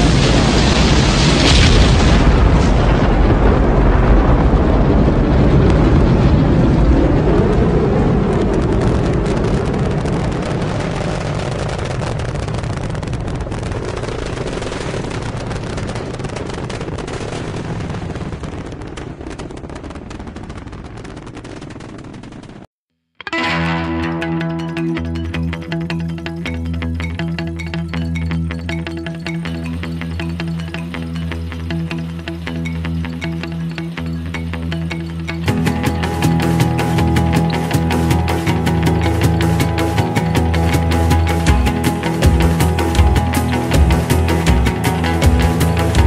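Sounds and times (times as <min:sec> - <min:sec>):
deep rumble of rocket engines: 0:00.0 - 0:22.6.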